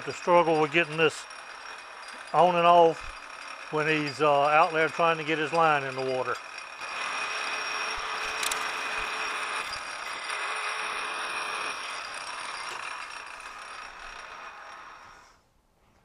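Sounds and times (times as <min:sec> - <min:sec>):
metal lathe humming with whine: 0:05.8 - 0:15.4.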